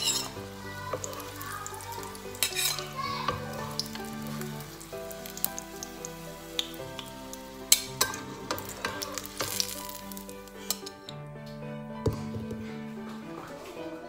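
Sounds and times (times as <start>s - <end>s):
metal spatula scraping a pan: 0.0s - 0.5s, 1.8s - 4.4s, 7.7s - 11.1s
eggplant frying in hot oil: 0.0s - 10.9s
soft background music: 0.0s - 14.0s.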